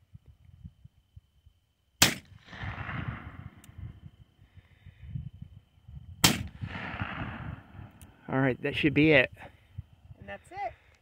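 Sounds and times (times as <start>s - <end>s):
revolver gunshot with echo: 2.0s - 3.6s, 6.2s - 7.8s.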